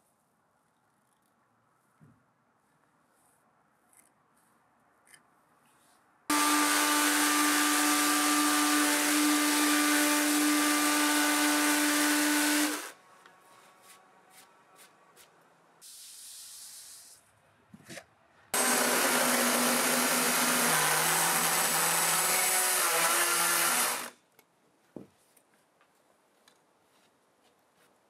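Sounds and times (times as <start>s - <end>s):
electric power tool motor: 6.3s - 12.9s, 18.6s - 24.1s
brief hiss: 15.8s - 17.2s.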